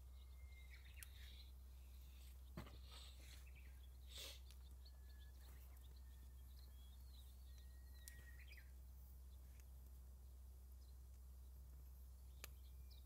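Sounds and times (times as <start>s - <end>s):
faint bird chirps: 0.0s - 9.6s.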